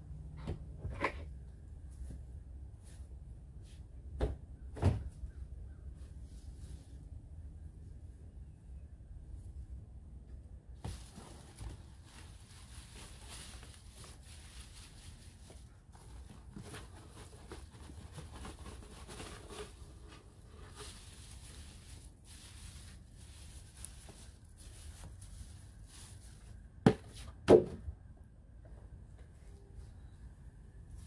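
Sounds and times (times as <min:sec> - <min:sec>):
leafy weeds rustling: 0:10.8 - 0:16.5, 0:19.5 - 0:26.7
sharp knocks on plastic bin: 0:26.8 - 0:27.8.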